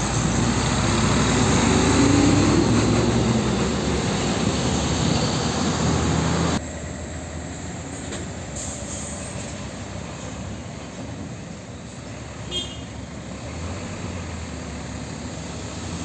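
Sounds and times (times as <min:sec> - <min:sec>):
truck rolling slowly: 0:00.0 - 0:12.4
diesel truck passing: 0:00.0 - 0:16.0
light traffic: 0:00.0 - 0:16.0.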